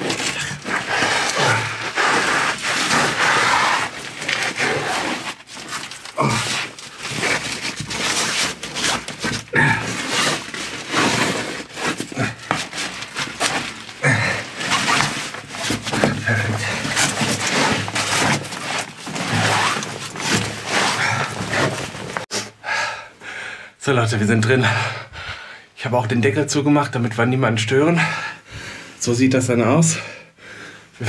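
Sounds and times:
boots scraping and knocking: 0.0 - 22.3
clothing rustling: 0.0 - 22.3.

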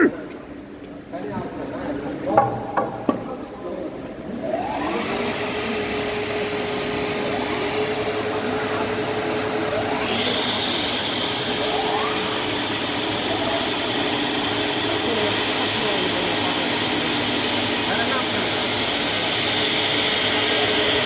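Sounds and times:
higher machine whine: 4.3 - 21.0
spindle motors winding up: 4.4 - 21.0.

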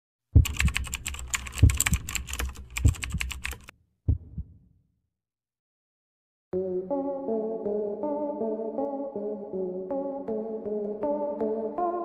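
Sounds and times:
rapid keyboard typing clicks: 0.4 - 3.7
deep thuds: 4.1 - 4.6.

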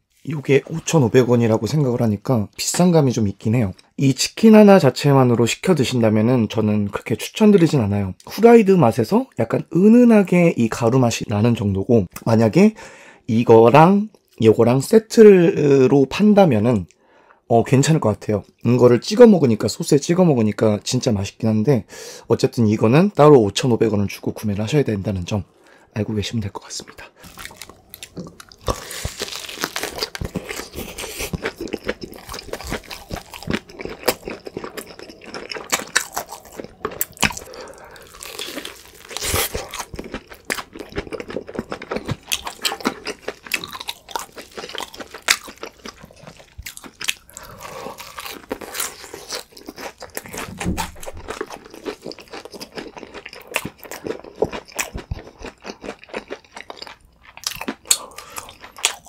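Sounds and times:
crunching crispy fried chicken: 27.2 - 59.0.

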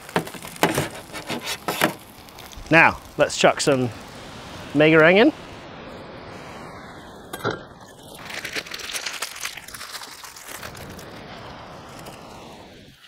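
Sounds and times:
plastic packet tearing and crinkling: 0.0 - 3.2, 8.0 - 11.1
steady hiss: 0.0 - 13.0.

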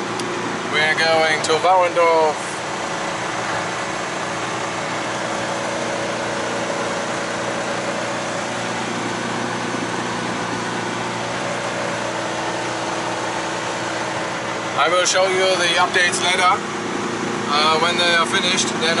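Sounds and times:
road noise: 0.0 - 19.0
van engine droning: 0.0 - 19.0.

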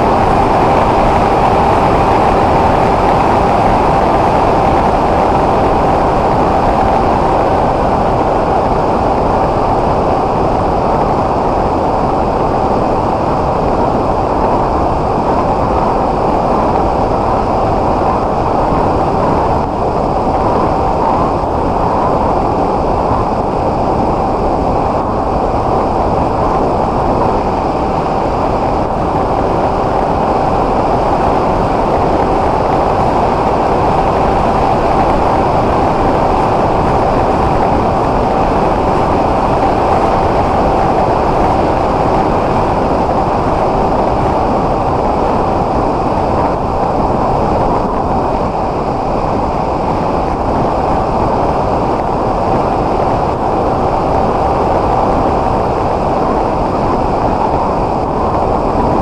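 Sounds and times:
electric motor and propeller whine: 0.0 - 55.8
wind rushing: 0.0 - 59.0.

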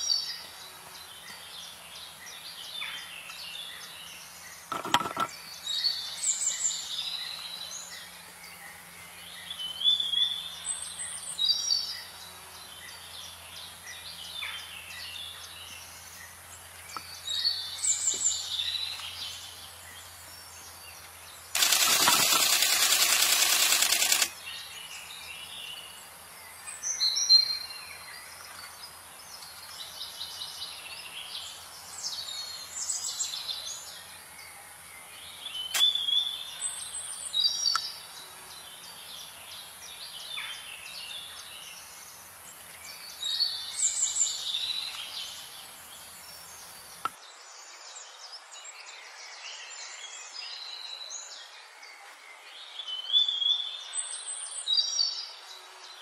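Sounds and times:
forest birds chirping and whistling: 0.0 - 56.0
high insect-like hiss: 21.5 - 24.3.

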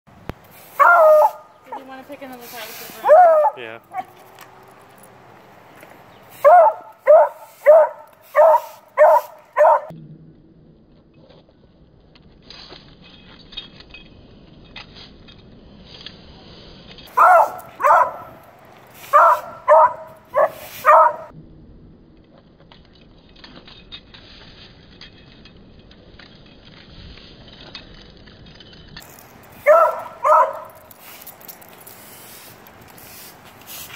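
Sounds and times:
push broom scratching concrete: 0.5 - 4.0, 6.3 - 9.9, 16.4 - 21.3, 29.0 - 33.9
puppy barking: 0.8 - 1.5, 3.0 - 4.1, 6.4 - 9.9, 17.1 - 18.4, 19.1 - 21.3, 29.6 - 30.8.

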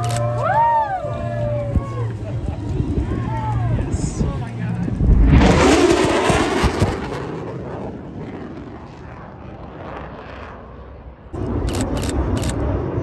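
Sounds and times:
fighter jet roaring past: 2.7 - 13.0.

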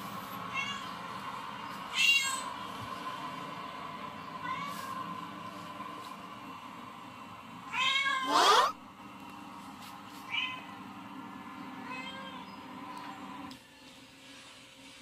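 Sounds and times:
steady hum: 0.0 - 13.5
cats meowing on television: 1.9 - 2.6, 7.7 - 8.8.

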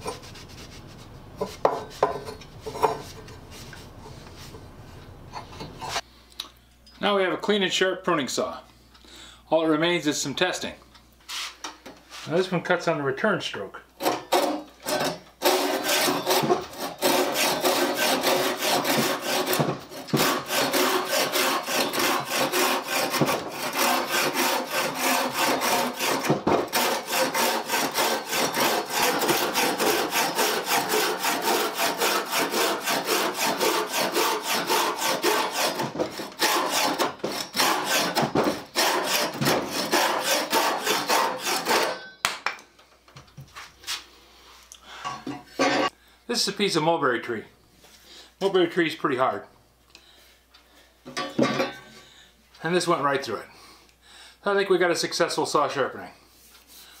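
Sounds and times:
saw cutting through wood: 14.3 - 42.0.

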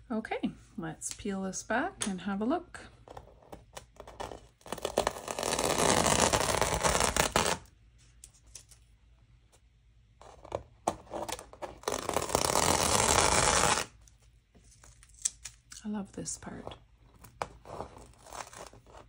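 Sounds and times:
tape peeled off paper: 4.6 - 7.7, 11.2 - 14.1.

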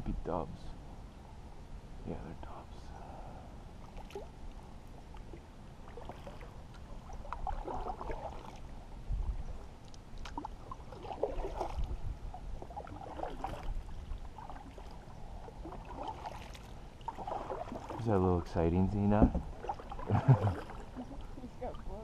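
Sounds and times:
paddle splashing in water: 5.2 - 8.7, 10.2 - 18.1, 19.2 - 22.0.

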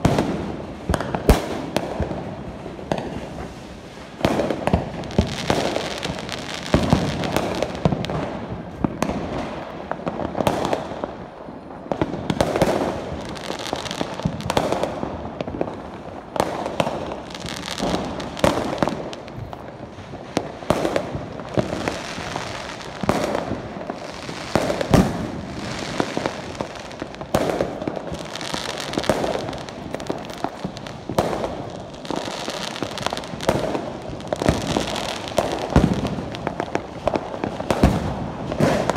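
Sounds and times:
fireworks and firecrackers banging: 0.0 - 38.9.

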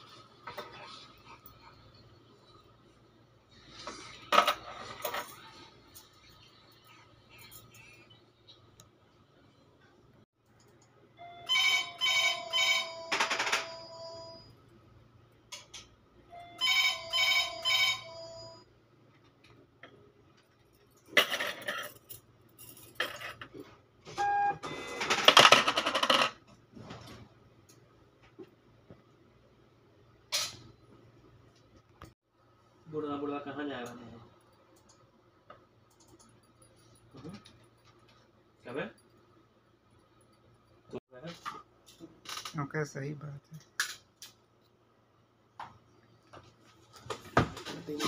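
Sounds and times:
phone ringtone: 11.2 - 14.5, 16.3 - 18.6.

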